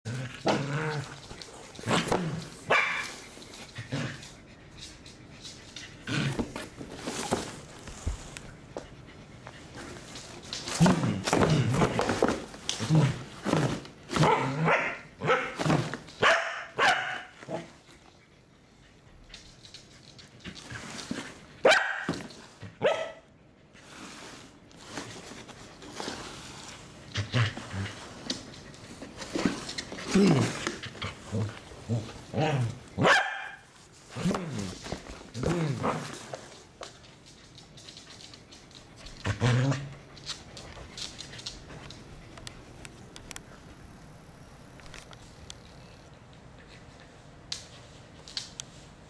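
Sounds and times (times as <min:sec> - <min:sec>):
dog barking: 0:02.7 - 0:03.0, 0:14.2 - 0:15.6, 0:16.2 - 0:17.3, 0:21.6 - 0:22.2, 0:22.8 - 0:23.3, 0:33.0 - 0:33.6
dog barking sharply: 0:16.2 - 0:17.3, 0:33.0 - 0:33.6.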